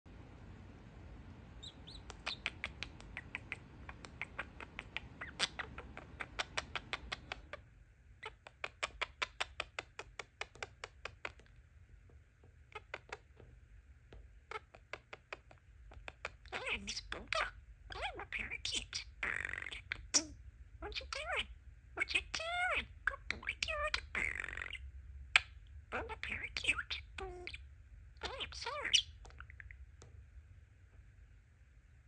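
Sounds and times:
steady low hum: 0.1 - 32.0
budgerigar chattering: 1.6 - 7.6, 8.2 - 11.5, 14.5 - 24.8, 25.4 - 29.7.

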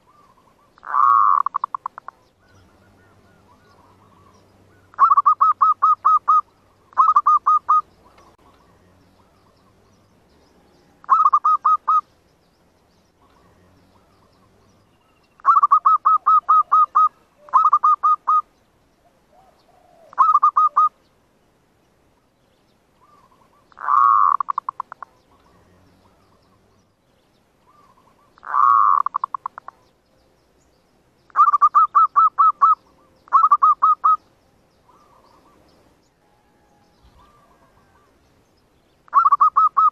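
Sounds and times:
dove cooing: 0.0 - 10.0, 10.9 - 12.0, 15.4 - 21.0, 23.0 - 26.7, 27.6 - 29.9, 31.3 - 34.2, 34.9 - 35.7, 36.3 - 38.2, 39.1 - 39.9.

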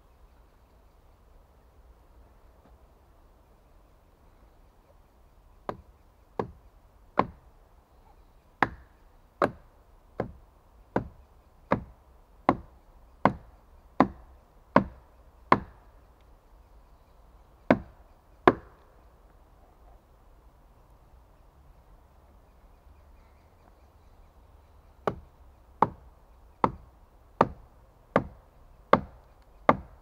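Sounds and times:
axe chopping wood: 5.6 - 5.8, 6.4 - 6.6, 7.2 - 7.4, 8.6 - 9.6, 10.2 - 13.4, 14.0 - 15.8, 17.7 - 18.8, 25.0 - 26.0, 26.6 - 26.8, 27.4 - 30.0.

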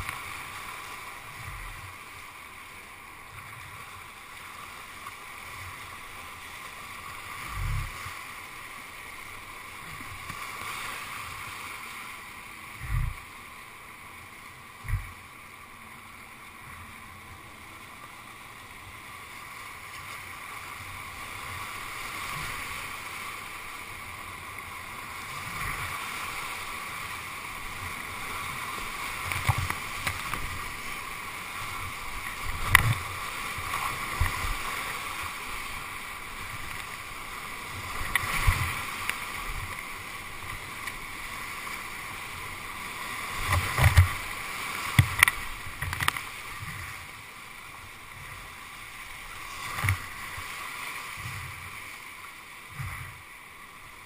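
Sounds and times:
paddle and wave knocks and splashes: 12.8 - 13.3, 27.8 - 31.0, 31.6 - 35.6, 37.8 - 41.0, 43.1 - 47.0, 49.5 - 51.8
whitewater rapids rushing: 14.8 - 54.0.

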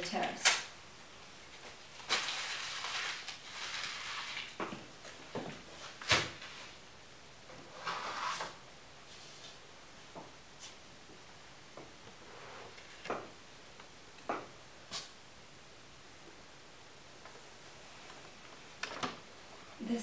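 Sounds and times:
rustling: 1.2 - 6.8.

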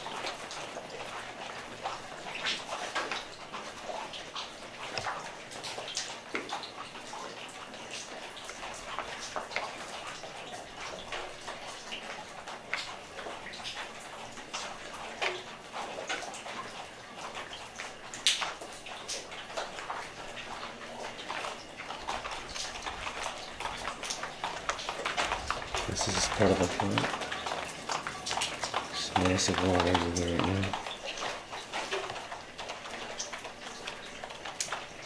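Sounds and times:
footsteps crunching over debris: 22.0 - 32.3.

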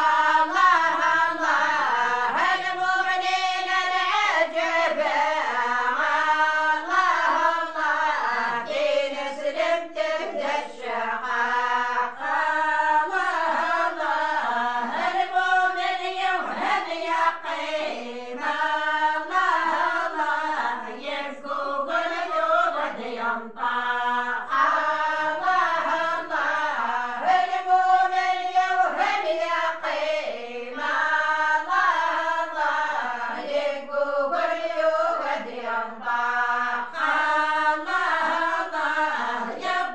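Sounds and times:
women singing unaccompanied chant: 0.0 - 39.9.

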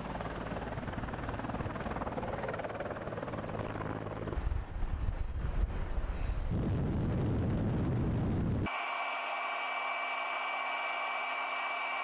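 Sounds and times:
helicopter rotor and turbine: 0.0 - 12.0
deep rumble with thumps: 6.5 - 8.7.

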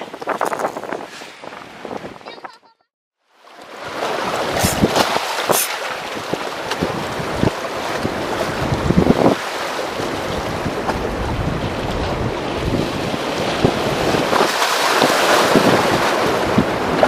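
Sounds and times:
wind buffeting microphone: 0.0 - 2.7, 4.5 - 9.5, 10.1 - 17.0
waves splashing against concrete: 3.4 - 17.0.

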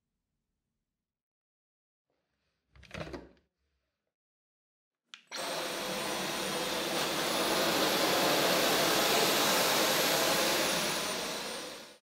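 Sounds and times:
vacuum motor whining: 5.3 - 12.0.

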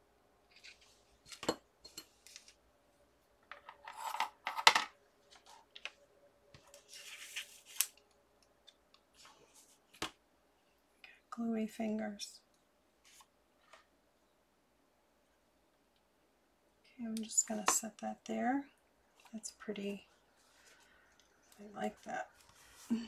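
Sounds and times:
paper rustling: 6.6 - 8.0.

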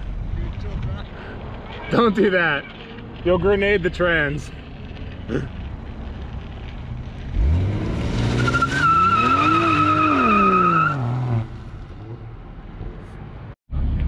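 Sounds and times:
car engine revving: 6.6 - 12.2
tyre squeal: 8.3 - 11.2.

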